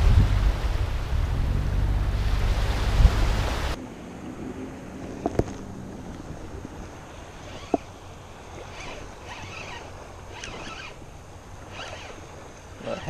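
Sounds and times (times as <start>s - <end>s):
water noise: 0.0s - 13.0s
wind: 0.0s - 13.0s
fishing reel whirring: 7.3s - 13.0s.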